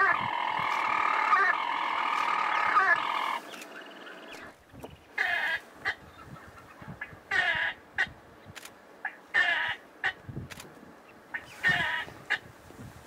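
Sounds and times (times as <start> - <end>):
bird purring churr: 0.0 - 4.5
short bird calls: 0.0 - 6.3, 11.3 - 12.5.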